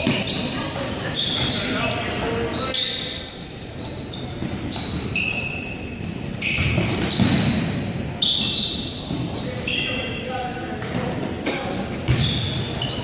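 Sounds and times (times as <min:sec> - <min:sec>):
low crowd murmur: 0:00.0 - 0:13.0
sneakers squeaking on gym floor: 0:00.0 - 0:13.0
basketball bouncing: 0:12.0 - 0:12.6.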